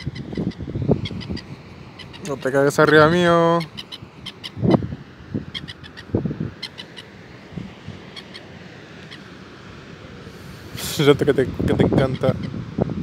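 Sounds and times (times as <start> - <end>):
gull calling: 0.0 - 7.2, 8.0 - 9.4, 12.0 - 12.6.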